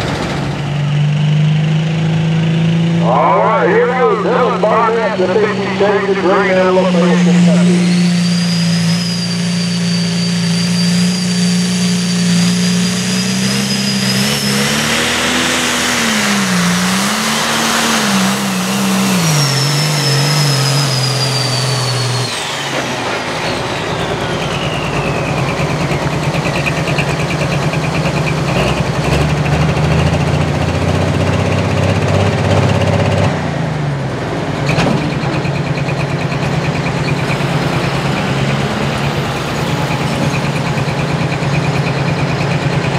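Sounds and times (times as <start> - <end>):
diesel engine at full throttle: 0.0 - 42.9
turbo whistle: 4.0 - 15.0, 19.1 - 22.5.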